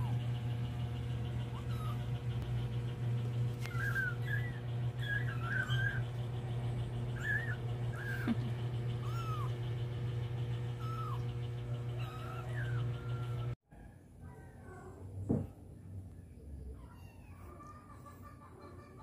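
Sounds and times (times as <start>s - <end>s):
steady low hum: 0.0s - 13.6s
kittens mewing: 1.2s - 2.5s, 3.5s - 6.3s, 7.0s - 13.6s.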